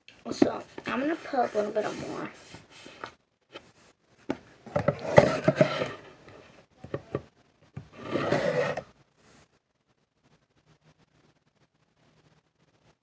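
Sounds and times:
plastic bottle rubbing: 7.9 - 8.9.

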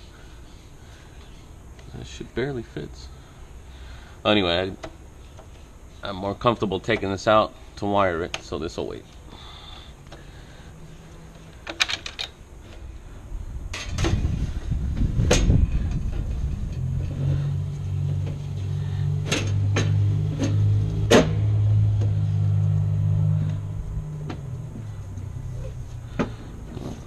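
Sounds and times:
low engine hum: 13.0 - 27.0.

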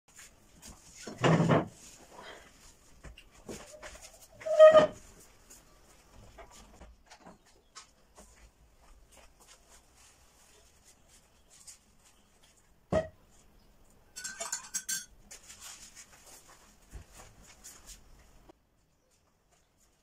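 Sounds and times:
metal spoon clinking ceramic mug: 14.2 - 15.1.

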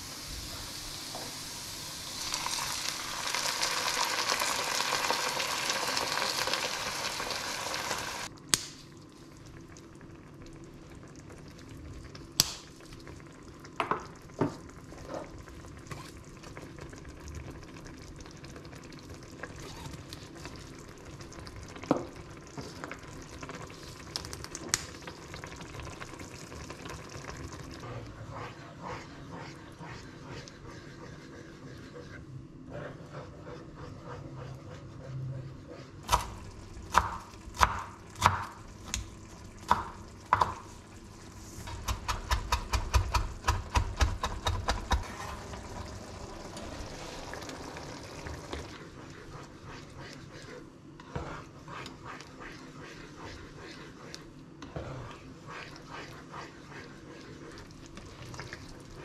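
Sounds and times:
onions and tomato sizzling in a pan: 0.0 - 8.3, 36.0 - 48.8.

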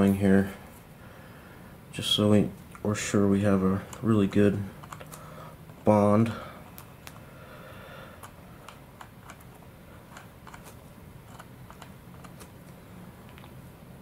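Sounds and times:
small plastic parts clicking: 4.8 - 5.3, 8.2 - 13.5.

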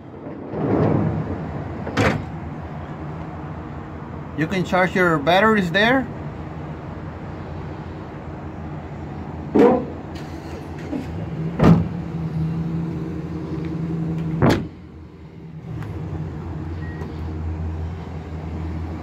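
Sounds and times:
tonneau cover thumping shut: 11.6 - 11.9, 14.3 - 14.8.

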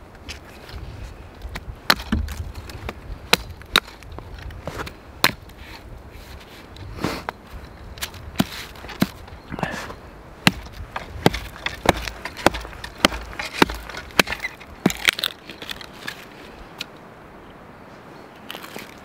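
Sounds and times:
hatchet chopping wood: 1.5 - 2.4, 3.3 - 4.0, 5.2 - 5.5, 8.0 - 9.2, 10.4 - 15.4.

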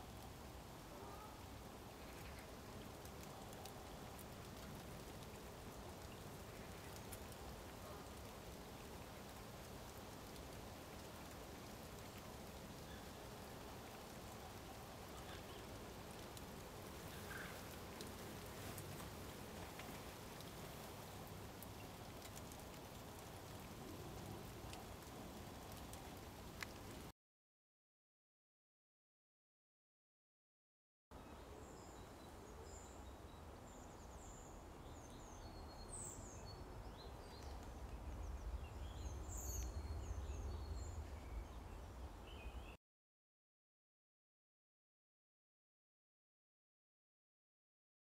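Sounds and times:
light rain on water: 0.0 - 27.1, 31.2 - 42.7
raindrops ticking: 1.8 - 27.1.

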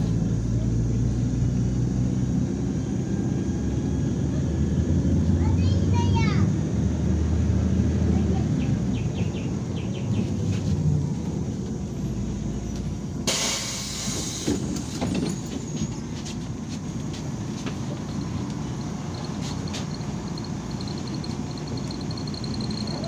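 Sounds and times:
bus cabin rumble: 0.0 - 23.0
compressed air hiss: 13.3 - 14.7.

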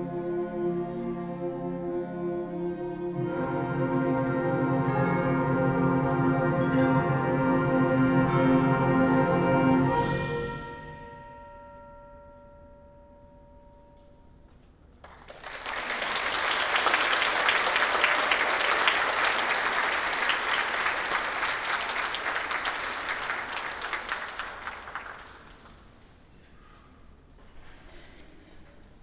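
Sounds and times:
audience applauding: 15.0 - 26.0.

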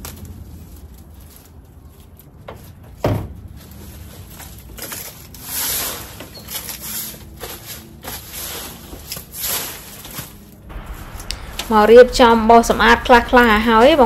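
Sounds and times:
garden tool scraping soil: 3.8 - 10.2
sharp thump: 10.7 - 14.0.

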